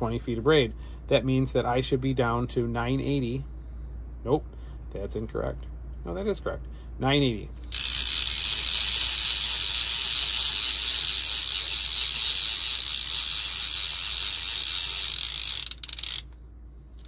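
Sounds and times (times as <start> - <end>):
fishing reel ratcheting whir: 7.6 - 16.4
rapid clicking: 7.8 - 16.4.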